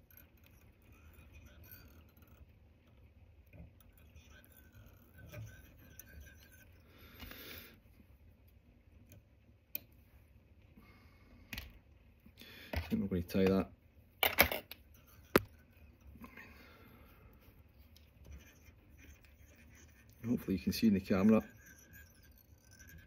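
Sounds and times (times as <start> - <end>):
scratchy rustle: 17.8 - 23.0.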